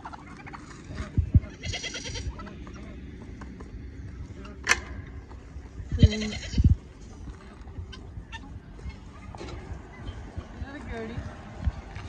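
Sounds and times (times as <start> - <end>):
farm animal call: 0.0 - 3.4, 5.8 - 9.4.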